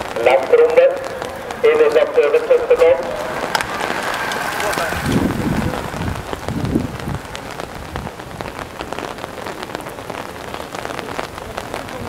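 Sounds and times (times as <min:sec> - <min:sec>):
rain falling: 0:00.0 - 0:12.0
raindrops ticking: 0:00.0 - 0:12.0.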